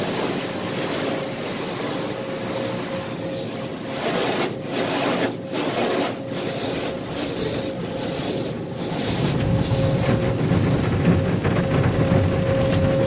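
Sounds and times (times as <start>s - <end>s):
car wash spraying and scrubbing: 0.0s - 13.0s
steady hum: 0.0s - 13.0s
low rumble: 8.8s - 13.0s.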